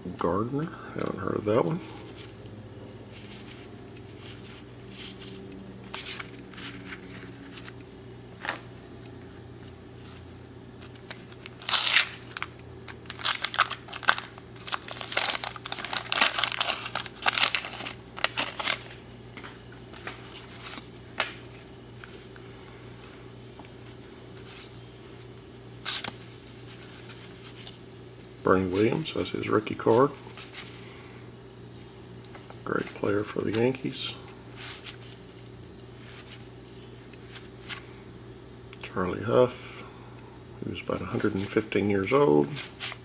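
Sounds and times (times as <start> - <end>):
faint steady hum: 0.0 - 43.0
paper pack crinkling and tearing: 10.8 - 19.0, 25.8 - 27.8.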